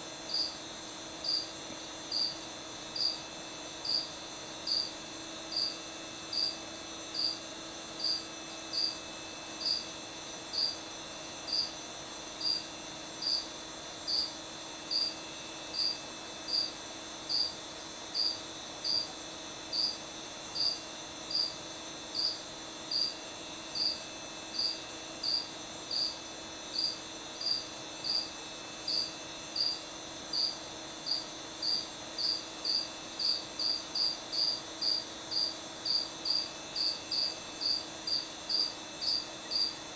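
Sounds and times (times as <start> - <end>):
faint steady hum: 0.0 - 39.9
cricket chirping: 0.3 - 0.6, 1.2 - 1.5, 2.1 - 2.4, 3.0 - 3.2, 3.8 - 9.0, 9.6 - 9.8, 10.5 - 10.8, 11.5 - 11.7, 12.4 - 13.5, 14.1 - 14.3, 14.9 - 17.5, 18.2 - 19.1, 19.7 - 20.0, 20.6 - 21.6, 22.2 - 28.3, 28.9 - 39.8.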